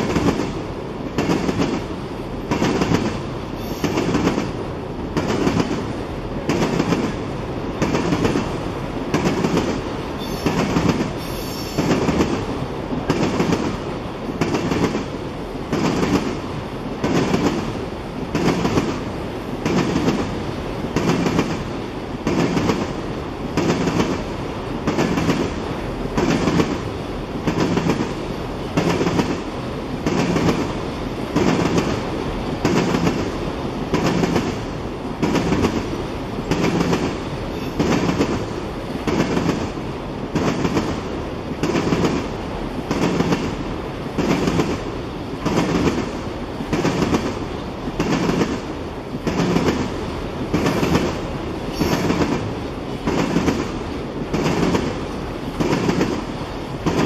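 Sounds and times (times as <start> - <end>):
train wheels clacking: 0.0 - 1.9, 2.5 - 7.2, 7.8 - 13.8, 14.4 - 16.4, 17.0 - 17.7, 18.3 - 19.0, 19.6 - 20.3, 20.9 - 23.0, 23.6 - 24.2, 24.8 - 28.2, 28.8 - 29.4, 30.0 - 30.7, 31.4 - 33.3, 33.9 - 42.3, 42.9 - 43.6, 44.2 - 47.4, 48.0 - 57.0
train rumble: 0.0 - 57.0.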